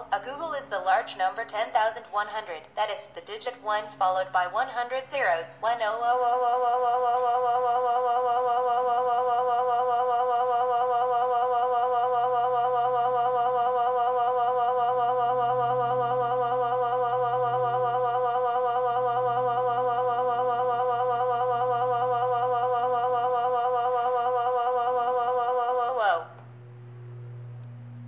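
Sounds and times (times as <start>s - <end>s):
synthesized voice warbling drone: 12.0s - 26.9s.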